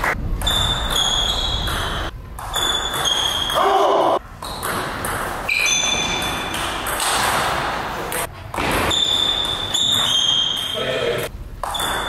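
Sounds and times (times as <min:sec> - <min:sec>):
high-pitched squeaks: 0:00.4 - 0:03.8, 0:05.5 - 0:06.7, 0:08.8 - 0:12.0.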